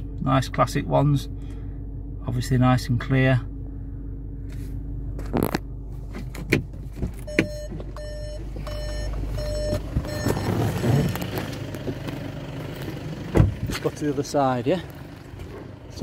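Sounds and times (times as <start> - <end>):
steady low hum: 0.0 - 16.0
car warning chime beeping: 7.2 - 11.1.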